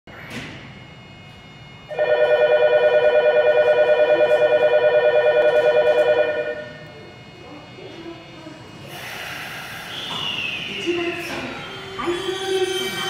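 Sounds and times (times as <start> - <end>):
pulsing electronic departure bell: 1.9 - 6.8.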